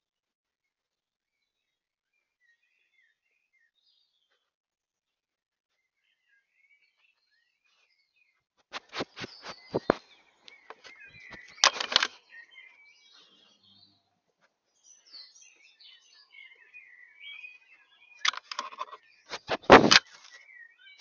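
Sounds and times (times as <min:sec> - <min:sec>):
small birds chirping: 0:01.2 - 0:21.0
fur scraping against camera: 0:08.7 - 0:10.1, 0:18.5 - 0:20.3.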